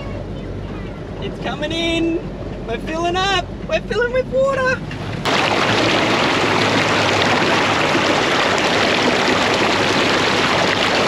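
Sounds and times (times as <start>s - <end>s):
vehicle splashing through water: 5.0s - 11.0s.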